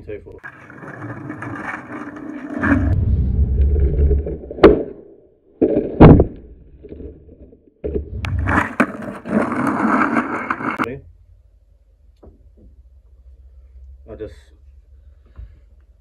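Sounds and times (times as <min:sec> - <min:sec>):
skateboard wheels rolling on concrete: 0:00.4 - 0:03.0, 0:07.8 - 0:10.9.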